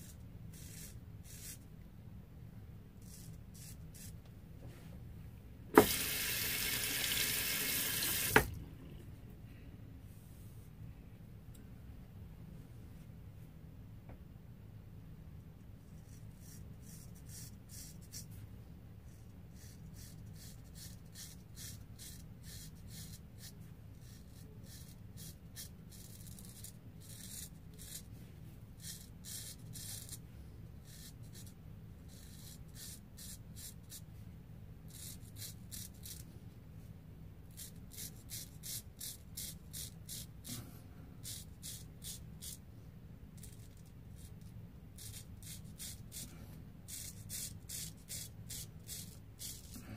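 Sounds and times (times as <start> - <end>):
razor scraping stubble: 46.9 - 49.8.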